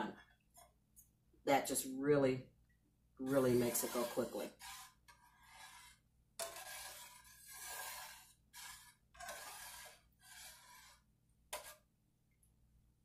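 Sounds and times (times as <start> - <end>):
metal spoon scraping a pot: 3.2 - 11.9.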